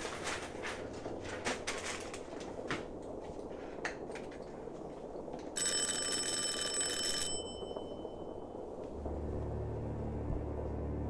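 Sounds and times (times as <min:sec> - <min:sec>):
high-pitched bell ringing: 0:05.6 - 0:08.6.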